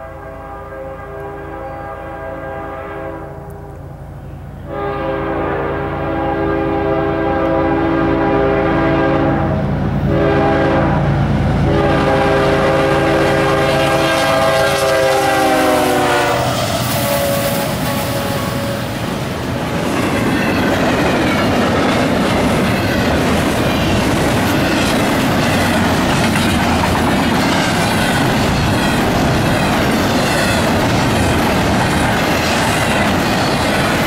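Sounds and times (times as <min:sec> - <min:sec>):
locomotive air horn: 0:00.0 - 0:03.9, 0:04.6 - 0:19.1
passing train rumble and rattle: 0:00.0 - 0:34.0.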